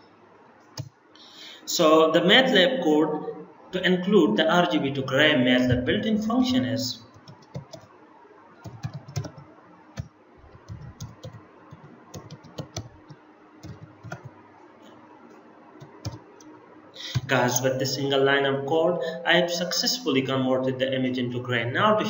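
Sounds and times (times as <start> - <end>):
computer keyboard typing: 7.1 - 7.9, 8.6 - 14.3, 15.8 - 16.5, 17.1 - 17.3.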